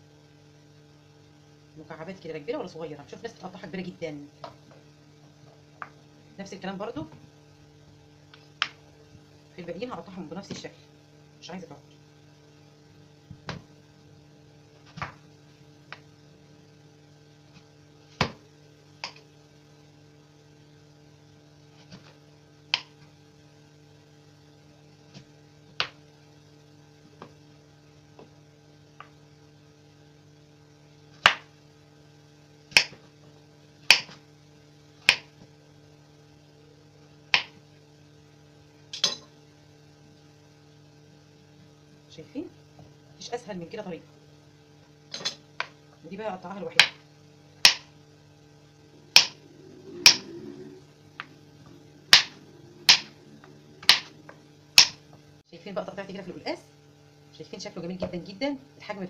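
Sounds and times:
steady low hum: 0.0 - 59.0
knife striking wooden cutting board: 49.1 - 49.4, 52.1 - 53.1.

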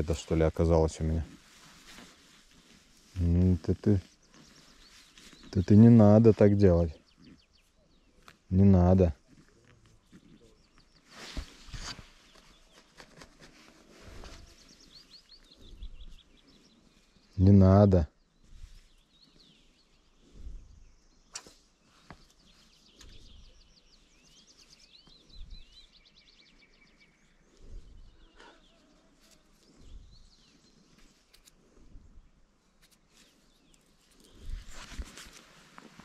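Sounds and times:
songbirds chirping: 0.0 - 36.0.

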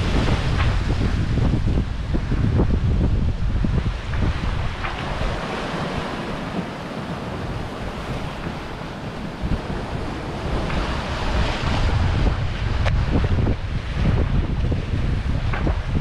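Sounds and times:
waves and rushing water: 0.0 - 16.0
wind buffeting microphone: 0.0 - 16.0.

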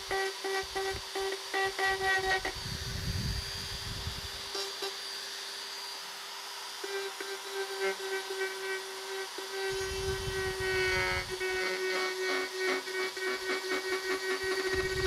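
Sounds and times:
rotary tool whining: 0.0 - 15.0.

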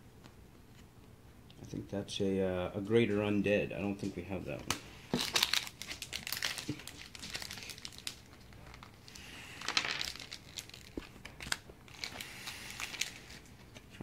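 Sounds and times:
foil pack crinkling and tearing: 5.1 - 13.8.

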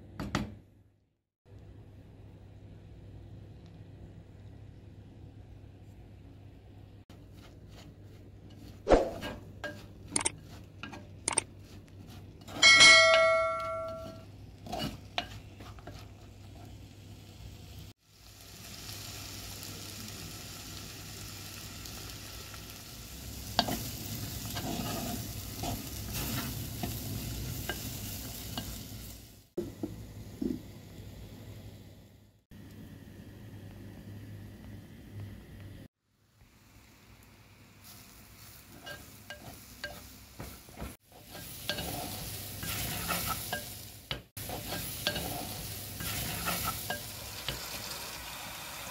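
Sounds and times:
wooden spoon stirring and scraping: 7.1 - 12.8, 13.9 - 16.8, 23.5 - 28.8, 37.8 - 47.8
ringing clink: 12.6 - 14.2
beans sizzling in a pot: 13.9 - 31.9, 36.0 - 48.9.

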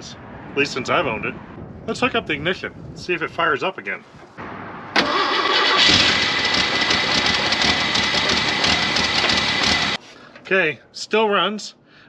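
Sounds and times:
engine starting and running: 4.9 - 10.0.

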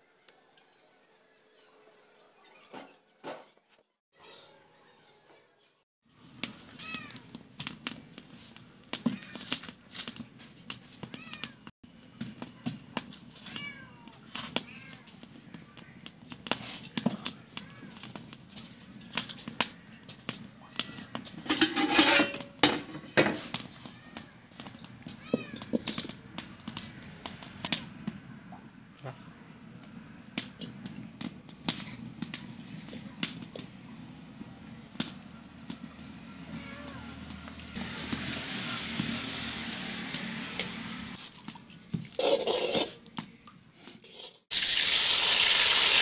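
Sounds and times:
clicks and knocks of stones and wok: 6.3 - 28.2, 30.4 - 33.7, 34.9 - 39.3.

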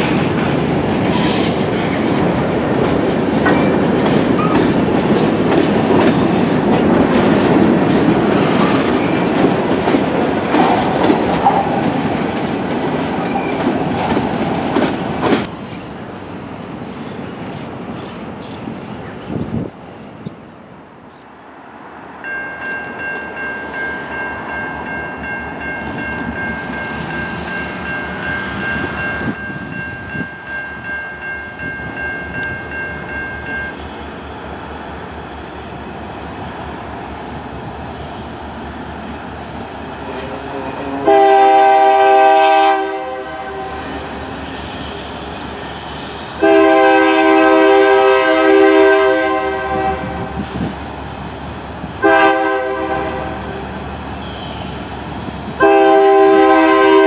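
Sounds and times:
train rumble and wheel noise: 0.0 - 57.0
locomotive air horn: 40.3 - 44.0, 46.4 - 50.4, 52.0 - 53.6, 54.2 - 54.8, 55.6 - 57.0.

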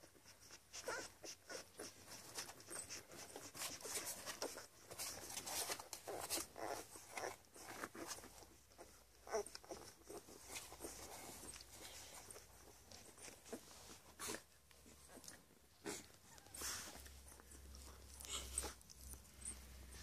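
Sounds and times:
puppy squeaks: 0.4 - 14.0.

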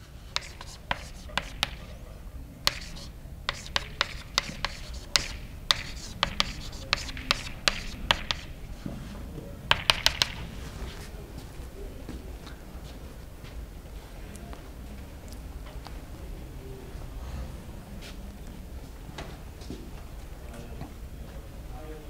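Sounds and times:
chalk tapping and scratching: 0.2 - 2.0, 2.6 - 9.0, 9.7 - 11.1.

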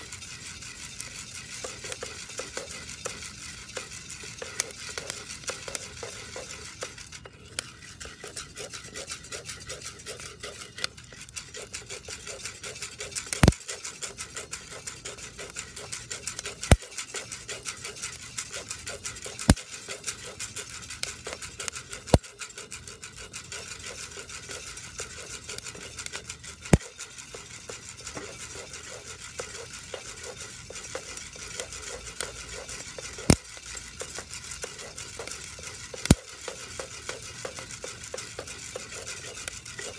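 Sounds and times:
coffee beans rattling in a pot: 0.0 - 39.9.

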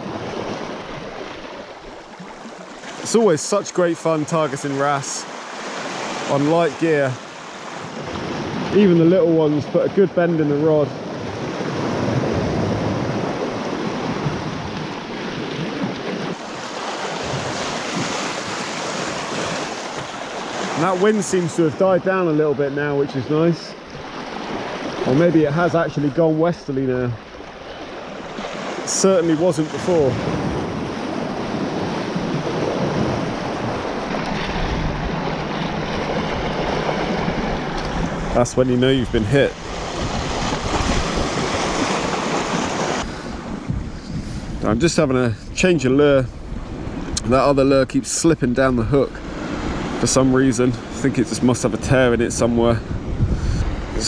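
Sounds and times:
waves breaking over rocks: 0.0 - 54.0
wind buffeting microphone: 10.9 - 21.0, 23.9 - 54.0.

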